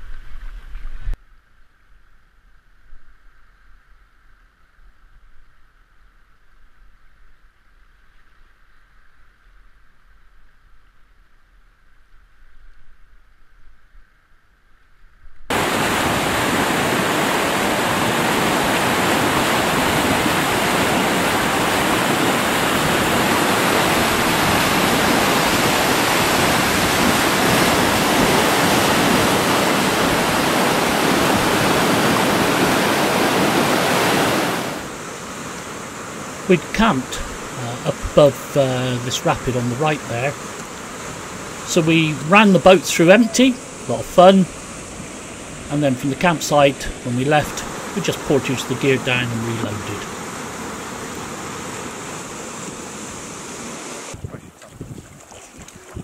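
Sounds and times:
river rapids rushing loudly: 15.5s - 54.2s.

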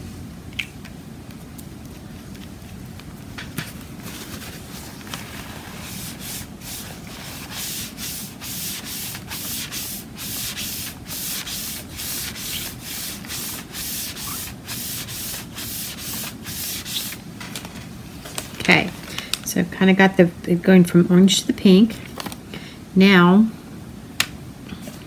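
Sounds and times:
applicator rubbing on photo paper: 5.5s - 17.2s.

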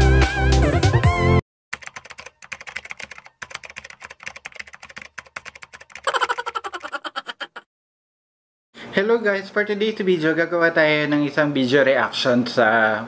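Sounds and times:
computer keyboard typing: 1.7s - 7.0s.

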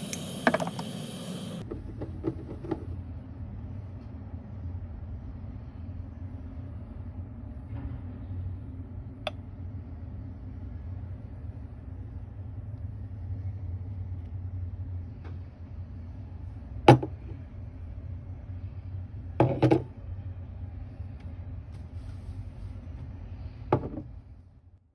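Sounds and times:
steady low hum: 0.0s - 24.9s
metal pitcher knocking on table: 23.7s - 24.1s.

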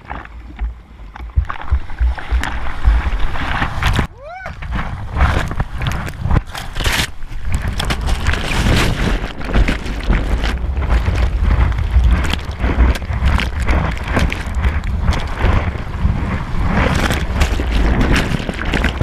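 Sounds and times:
water rushing and splashing: 0.0s - 19.0s
wind buffeting camera: 0.0s - 19.0s.

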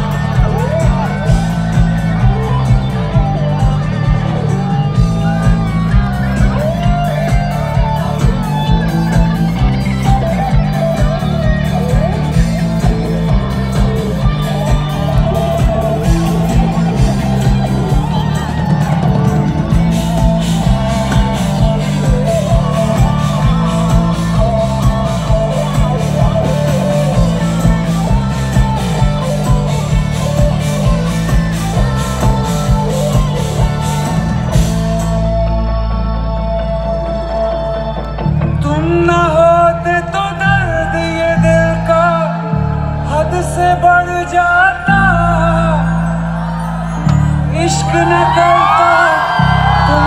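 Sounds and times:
steady drum beat: 0.0s - 35.4s
bass guitar: 0.0s - 50.0s
guitar: 0.0s - 50.0s
live band music: 0.0s - 50.0s.

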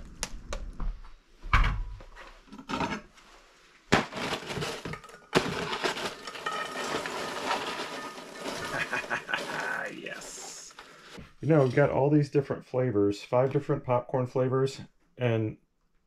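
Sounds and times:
foil crinkling: 3.9s - 11.8s
popcorn pouring into steel bowl: 4.0s - 10.8s.

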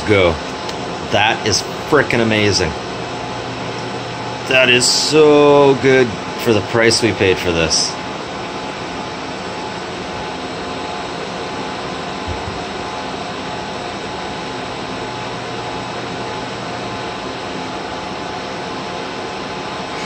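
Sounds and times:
cooling fans whirring: 0.0s - 20.0s
low thump: 12.3s - 12.6s.

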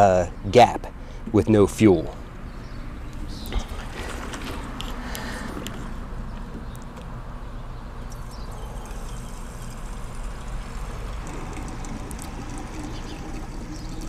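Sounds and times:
gasoline pouring into tank: 3.6s - 5.8s, 8.1s - 14.0s.

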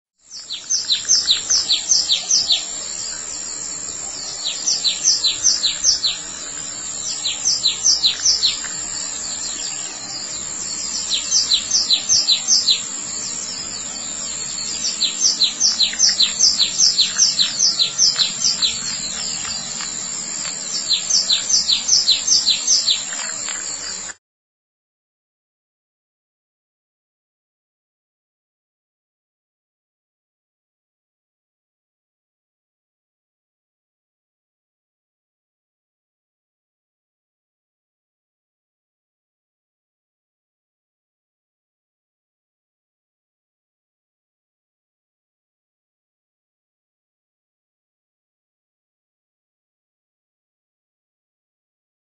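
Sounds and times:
high-pitched whine: 0.3s - 24.2s
songbird chirping: 0.3s - 24.2s.

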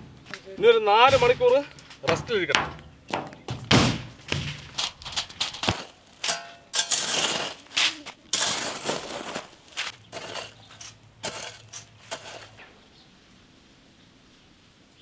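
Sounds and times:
sharp knocks: 0.0s - 6.6s
rake scraping sand and gravel: 4.4s - 13.0s.

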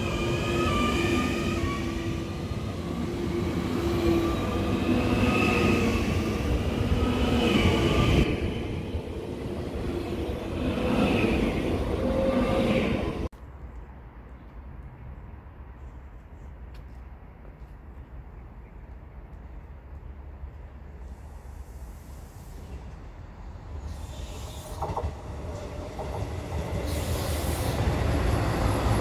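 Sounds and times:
train rumbling past: 0.0s - 13.3s, 19.4s - 29.0s
train whining tones: 0.0s - 13.3s.

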